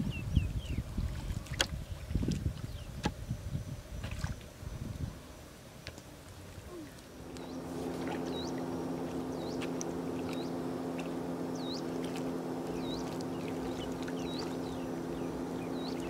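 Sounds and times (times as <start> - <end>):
bird calling: 6.7 - 16.0
low engine drone: 7.0 - 16.0.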